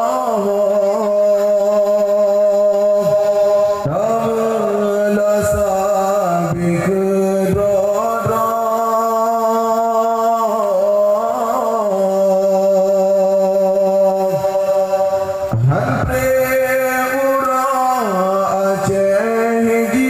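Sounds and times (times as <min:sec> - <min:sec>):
man singing into microphone: 0:00.0 - 0:20.0.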